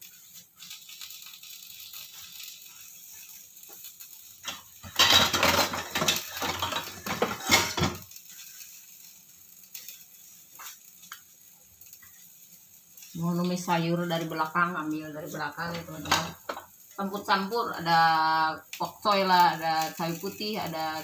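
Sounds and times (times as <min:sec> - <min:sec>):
cookware and utensils clattering: 0:04.4 - 0:08.1, 0:15.6 - 0:16.7.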